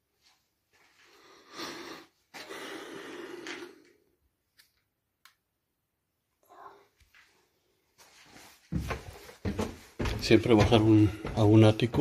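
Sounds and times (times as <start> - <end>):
person breathing heavily: 1.0 - 4.1.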